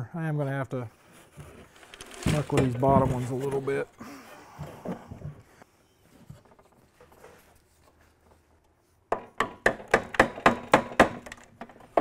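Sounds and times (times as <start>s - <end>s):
faint handling rustle: 1.0s - 9.0s.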